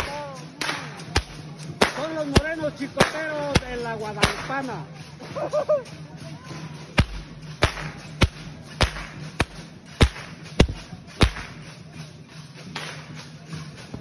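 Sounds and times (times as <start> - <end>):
whips cracking: 0.0 - 4.6, 6.9 - 11.8, 12.6 - 13.6.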